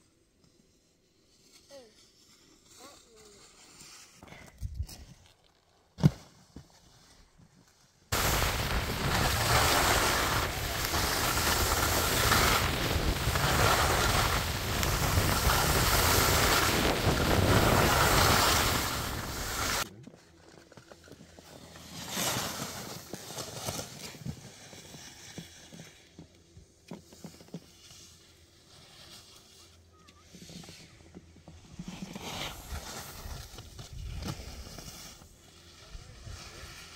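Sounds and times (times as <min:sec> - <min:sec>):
skis sliding over snow: 0:00.2 - 0:19.9, 0:20.6 - 0:36.9
wind rushing on microphone: 0:08.2 - 0:19.8.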